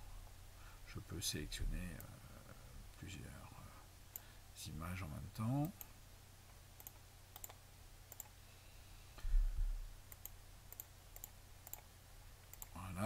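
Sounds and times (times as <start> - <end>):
computer mouse clicks: 6.8 - 8.4, 10.1 - 12.8
low thump: 9.2 - 9.9.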